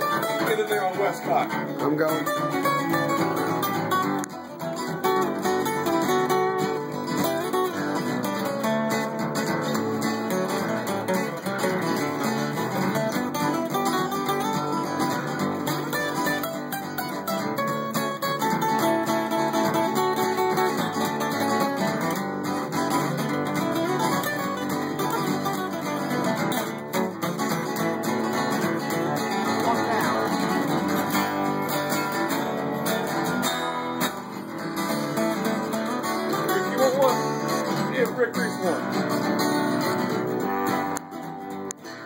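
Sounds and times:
acoustic guitar strummed and picked: 0.0 - 42.0.

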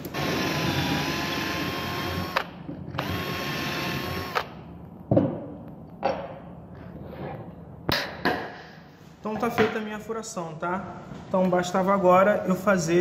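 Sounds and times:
electric drill whining: 0.0 - 4.5.

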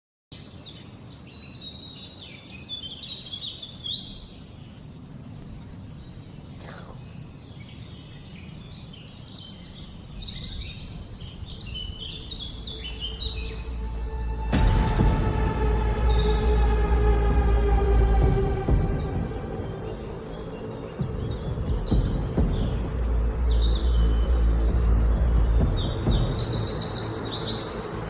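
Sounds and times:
small birds chirping: 0.3 - 28.0
music: 11.6 - 28.0
loud hit: 14.2 - 19.7.

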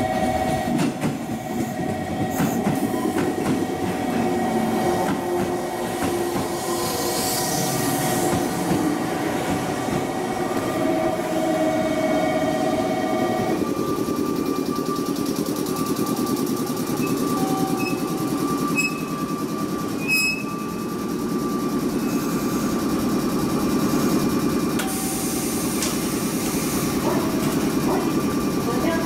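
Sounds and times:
train pulsing hum: 0.0 - 29.0
air hiss of doors opening: 24.8 - 27.0.

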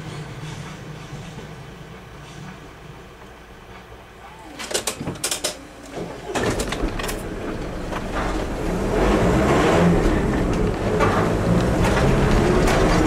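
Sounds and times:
car engine and road noise: 5.4 - 13.0.

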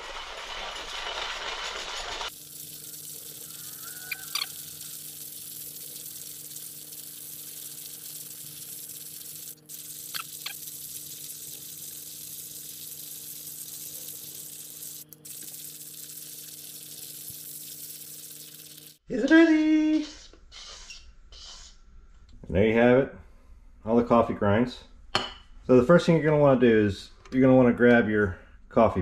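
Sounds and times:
hand coffee grinder grinding: 0.0 - 19.0.

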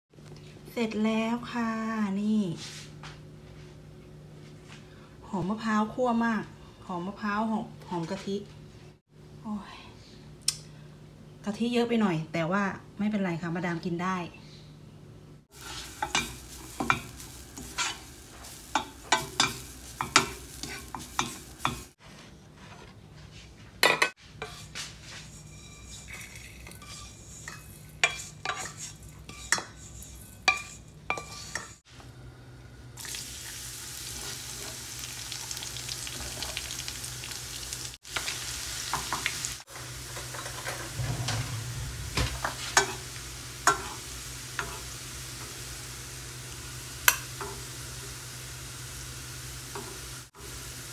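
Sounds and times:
garlic sizzling in oil: 15.5 - 22.0, 24.4 - 31.9, 33.0 - 41.1, 41.8 - 50.9
wooden spatula scraping a pan: 15.6 - 23.5, 24.2 - 31.8, 40.1 - 44.0
metal spoon tapping a pan: 47.1 - 47.6.

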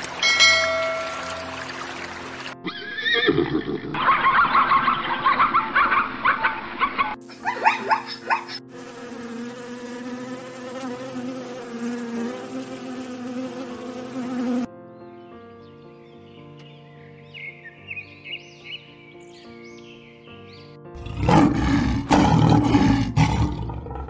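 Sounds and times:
soft background music: 0.0 - 3.3, 7.2 - 22.1
zebras barking: 2.6 - 8.7
hoverfly wing buzz: 8.7 - 14.7.

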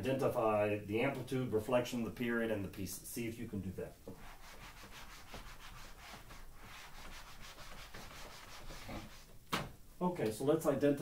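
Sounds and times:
eraser swishing on whiteboard: 4.1 - 9.3.

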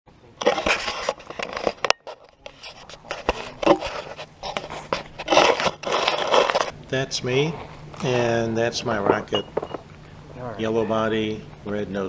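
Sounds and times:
fingers rubbing camera housing: 0.5 - 6.7.

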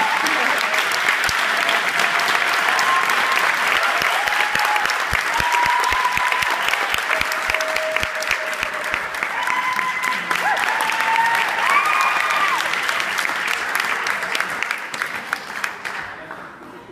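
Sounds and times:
audience applauding: 0.0 - 16.6
people whooping: 1.6 - 12.9.

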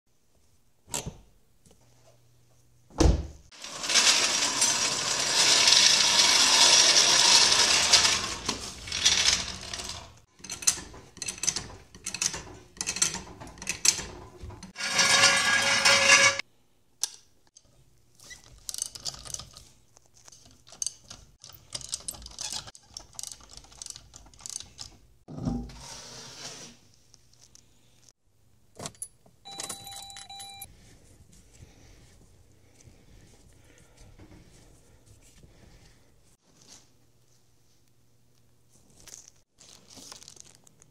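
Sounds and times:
hand tools clanking and ratcheting: 3.7 - 16.4.

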